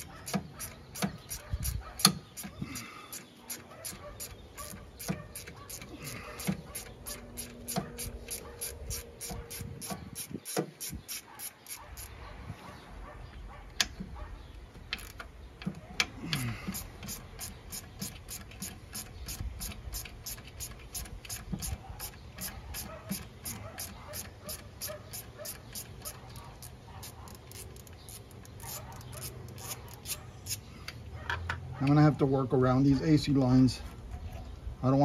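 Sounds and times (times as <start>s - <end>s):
ratchet clicking on bolts: 0.0s - 12.1s, 14.9s - 30.6s.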